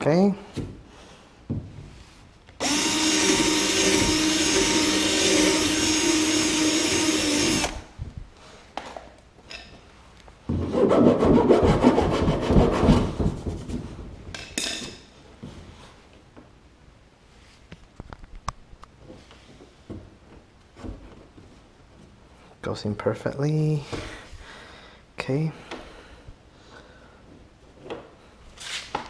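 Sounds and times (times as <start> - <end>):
drill boring through plastic: 2.6 - 7.9.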